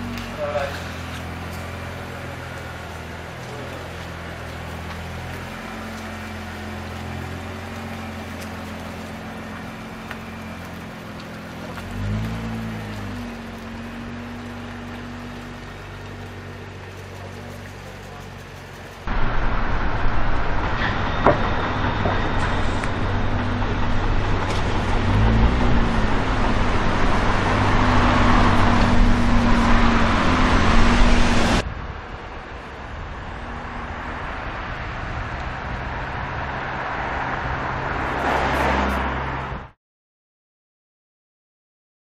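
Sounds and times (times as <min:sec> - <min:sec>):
road traffic noise: 0:00.0 - 0:39.8
low car engine note: 0:19.1 - 0:31.9.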